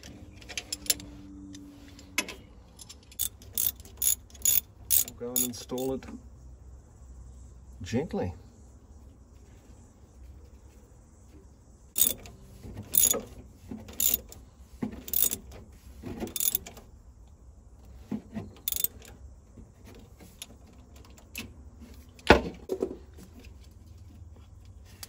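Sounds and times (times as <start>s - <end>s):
socket ratchet clicking: 3.1s - 5.9s, 12.0s - 12.2s, 13.0s - 13.2s, 14.0s - 14.3s, 15.1s - 15.4s, 16.3s - 16.7s, 18.7s - 19.1s.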